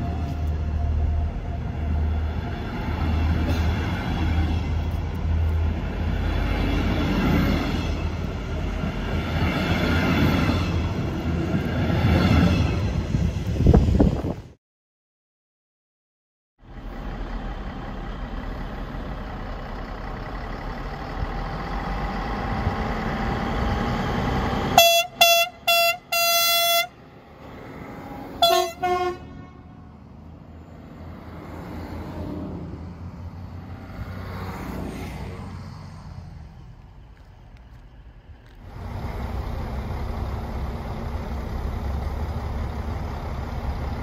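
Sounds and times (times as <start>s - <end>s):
diesel railcar running: 0.0s - 14.6s, 16.6s - 44.0s
train horn blasts: 24.8s - 27.0s, 28.4s - 29.9s.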